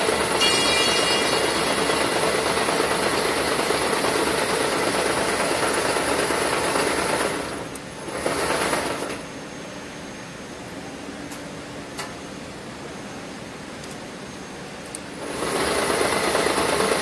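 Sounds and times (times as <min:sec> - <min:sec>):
braiding machine running: 0:00.0 - 0:09.1.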